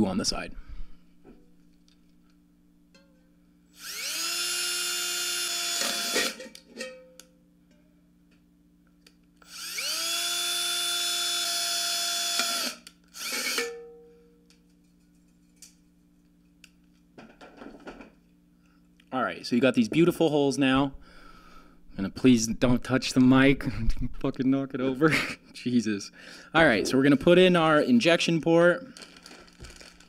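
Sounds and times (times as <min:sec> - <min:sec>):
cordless drill whining through metal: 0:03.8 - 0:06.5, 0:09.4 - 0:13.7.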